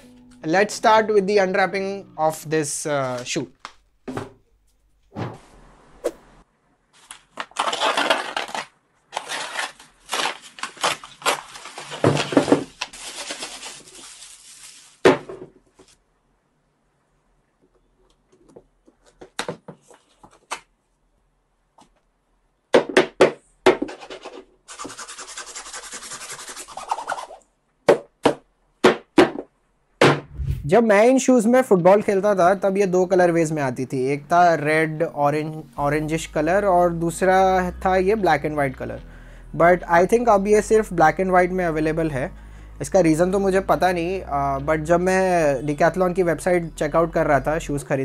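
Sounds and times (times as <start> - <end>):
paper bag crinkling: 6.9 - 15.2.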